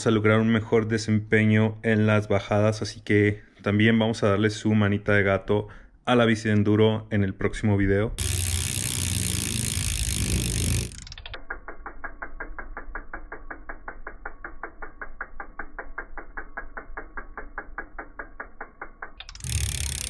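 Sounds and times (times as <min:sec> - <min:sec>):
bicycle hub ticking: 0:08.2 - 0:20.0.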